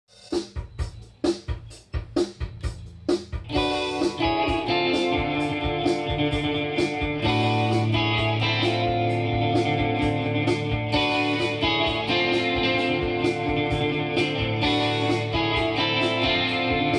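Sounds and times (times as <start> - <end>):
electric guitar playing: 3.4 - 16.9.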